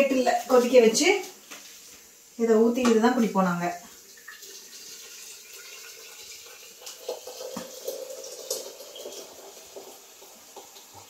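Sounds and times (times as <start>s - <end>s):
water pouring from kettle: 3.9s - 11.0s.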